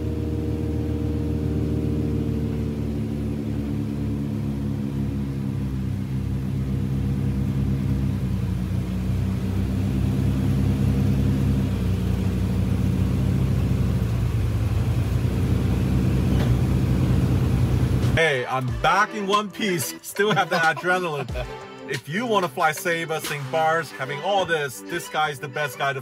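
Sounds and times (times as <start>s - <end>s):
piston engines and propellers: 1.2s - 18.2s.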